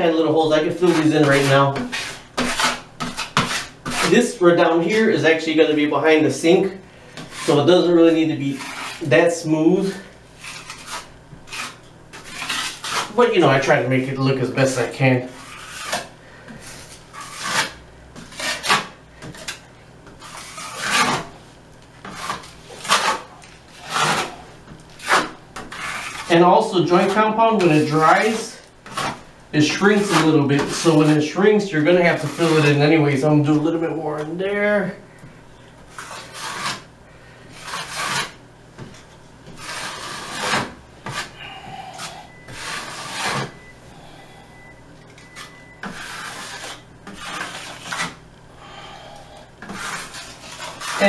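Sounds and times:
knife scraping compound on wall: 0.0 - 21.4, 22.0 - 35.0, 35.9 - 36.9, 37.5 - 43.7, 45.2 - 48.2, 48.8 - 51.0.

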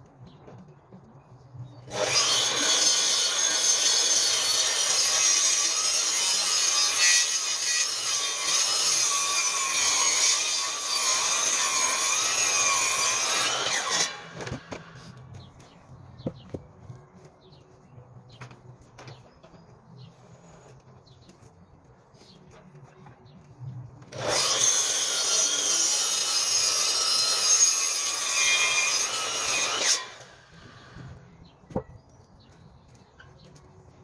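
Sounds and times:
mitre saw cutting through wood: 1.9 - 15.2, 24.1 - 31.0.

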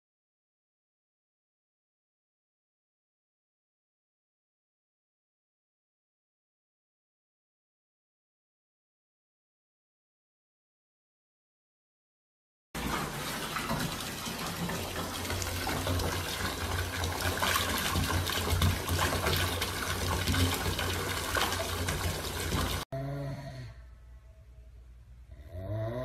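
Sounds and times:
tap water running into bathtub: 12.8 - 22.9.

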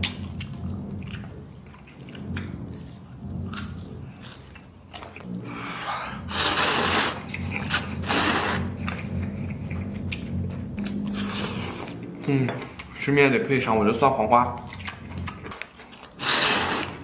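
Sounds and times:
chewing: 0.0 - 13.2, 13.8 - 17.0
person slurping noodles: 5.3 - 8.8, 16.1 - 17.0.

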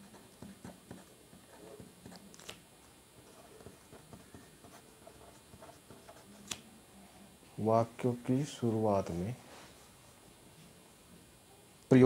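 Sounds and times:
pen scratching on paper: 0.0 - 2.2, 3.2 - 6.4.

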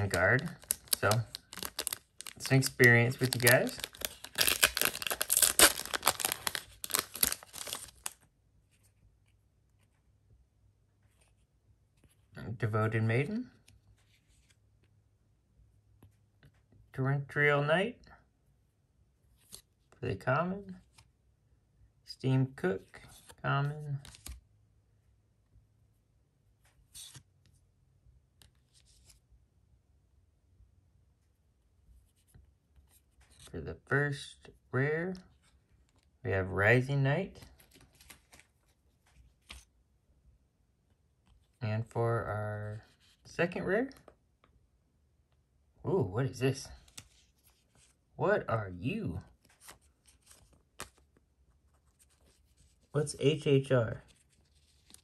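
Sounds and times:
foil wrapper tearing and crinkling: 0.5 - 8.2.

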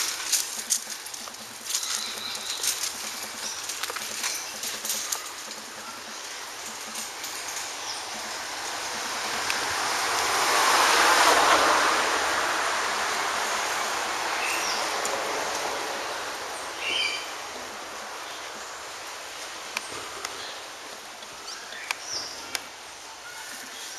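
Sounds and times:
vehicle passing: 6.5 - 18.2.

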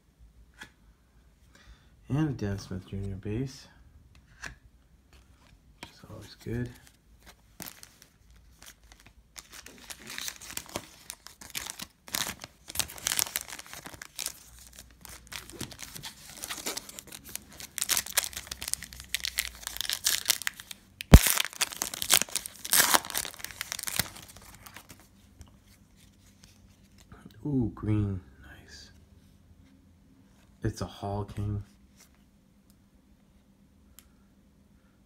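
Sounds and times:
foil wrapper crinkling and tearing: 7.6 - 25.0.

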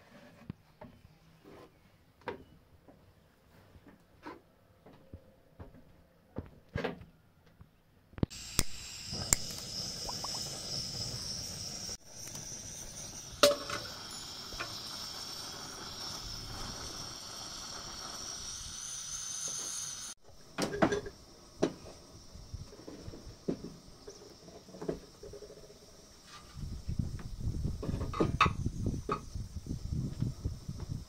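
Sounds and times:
oil hissing in a pan: 8.3 - 24.4.

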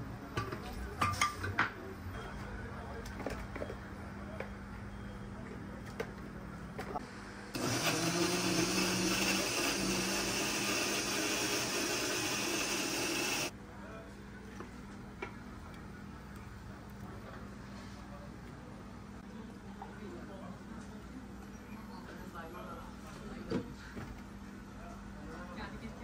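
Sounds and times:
blender motor running: 7.5 - 13.5.

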